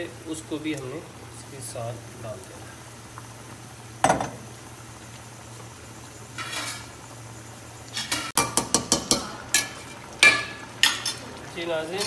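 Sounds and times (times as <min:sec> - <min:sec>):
metal spoon clanking on a pot: 0:08.0 - 0:11.2.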